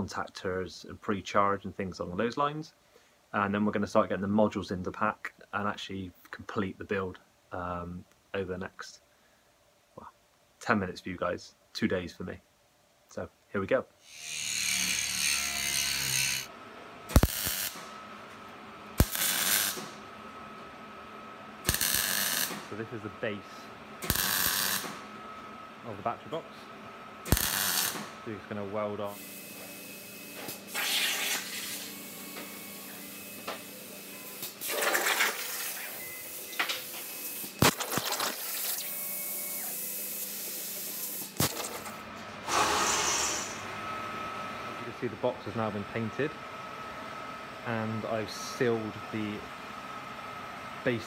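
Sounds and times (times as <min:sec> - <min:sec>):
angle grinder on steel: 0:14.1 - 0:16.5, 0:21.7 - 0:22.5, 0:24.1 - 0:24.8
plasma cutter hissing: 0:17.1 - 0:17.8, 0:19.0 - 0:19.8, 0:21.7 - 0:22.6, 0:27.3 - 0:28.0, 0:37.6 - 0:39.0, 0:42.5 - 0:43.7
electric arc welding bursts: 0:17.1 - 0:17.9, 0:19.0 - 0:20.0, 0:21.6 - 0:22.8, 0:24.0 - 0:25.0, 0:27.2 - 0:28.2, 0:29.1 - 0:41.8, 0:42.5 - 0:43.7.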